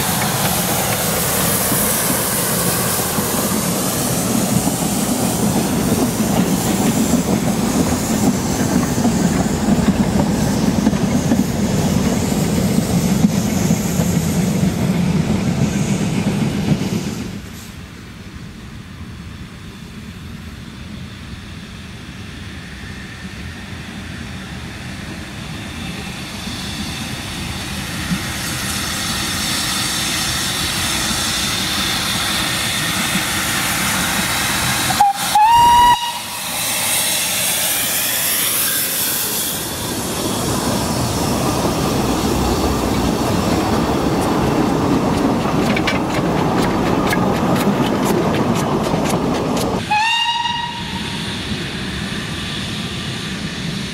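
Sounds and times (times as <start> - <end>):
steam hissing: 0.0 - 18.0, 19.7 - 53.9
steam train running past: 0.0 - 53.9
steam whistle blast: 34.8 - 37.4, 49.8 - 51.5.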